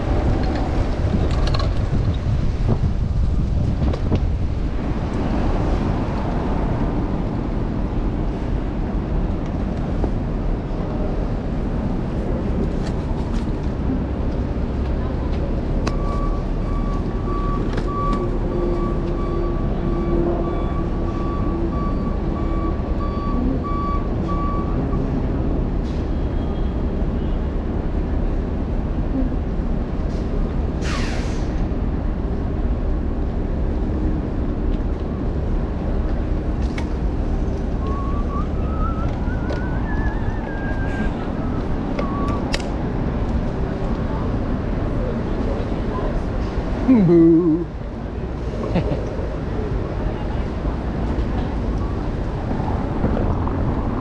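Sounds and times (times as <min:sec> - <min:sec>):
city traffic noise: 0:00.0 - 0:54.0
reversing alarm beeping: 0:15.9 - 0:25.0, 0:37.8 - 0:40.3.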